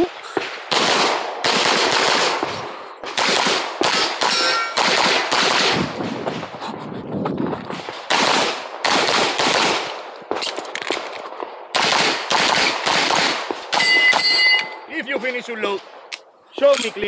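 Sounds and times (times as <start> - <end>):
handgun rapid shots: 0.7 - 2.5, 3.2 - 5.8, 8.1 - 11.0.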